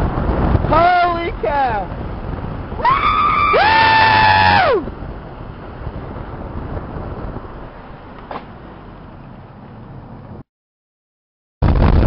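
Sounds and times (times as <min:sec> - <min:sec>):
wind and road noise: 0:00.0 - 0:10.5, 0:11.6 - 0:12.0
person screaming: 0:02.8 - 0:04.8.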